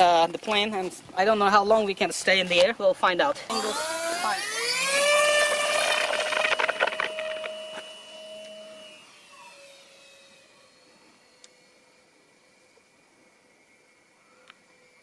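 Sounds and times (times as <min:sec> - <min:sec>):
model plane motors whining: 0:03.5 - 0:15.0.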